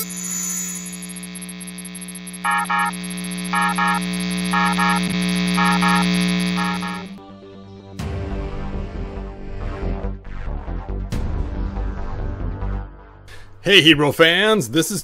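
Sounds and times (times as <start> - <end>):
electronic drone: 0.0 - 7.2
paired electronic beeps: 0.0 - 7.2.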